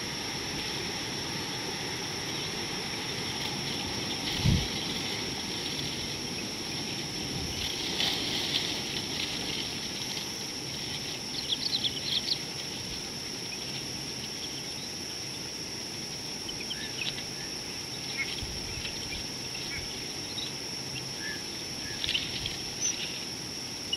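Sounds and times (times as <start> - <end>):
high insect drone: 0.0 - 23.9
bird chirping: 11.3 - 12.5.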